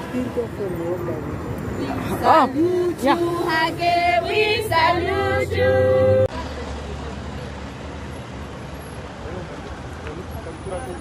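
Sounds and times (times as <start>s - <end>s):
military vehicles driving past: 0.0s - 11.0s
road traffic rumble: 0.0s - 11.0s
girls singing together: 2.2s - 6.3s.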